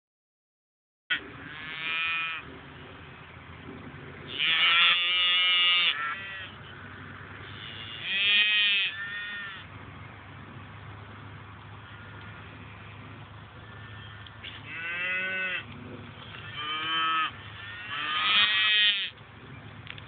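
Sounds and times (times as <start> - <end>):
calf bleating: 1.1 - 2.5, 4.3 - 6.6, 7.4 - 9.7, 13.6 - 15.7, 16.3 - 19.2.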